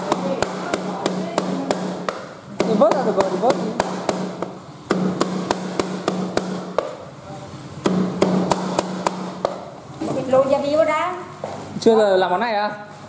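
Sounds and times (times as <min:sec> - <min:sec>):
cleaver chopping on cutting board: 0:00.0 - 0:07.0.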